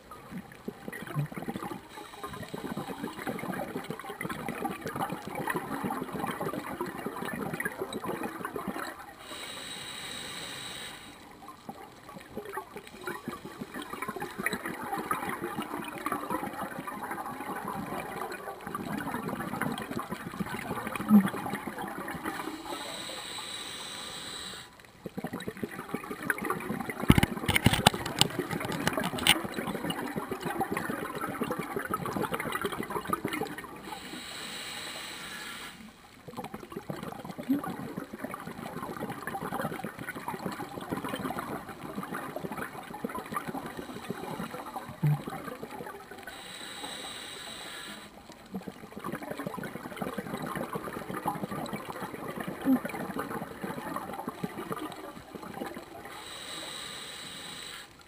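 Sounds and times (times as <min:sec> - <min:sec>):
exhaled air bubbling: 0:00.0 - 0:58.0
hissing regulator inhale underwater: 0:01.9 - 0:03.4, 0:09.2 - 0:11.4, 0:22.2 - 0:24.8, 0:33.8 - 0:36.0, 0:43.5 - 0:45.0, 0:46.2 - 0:48.3, 0:56.0 - 0:58.0.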